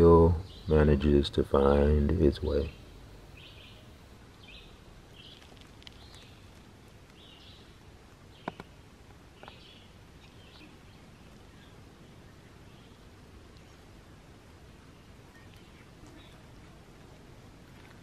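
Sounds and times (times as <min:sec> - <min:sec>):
faint woodland ambience: 0:00.0 - 0:18.0
bird chirping: 0:00.1 - 0:14.0, 0:14.7 - 0:16.6.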